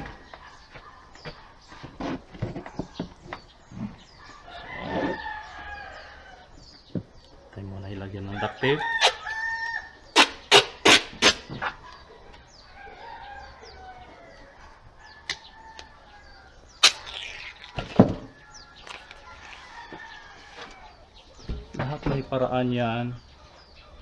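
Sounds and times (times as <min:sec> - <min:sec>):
duct tape pulled off roll: 0:10.2 - 0:11.5, 0:16.8 - 0:18.0.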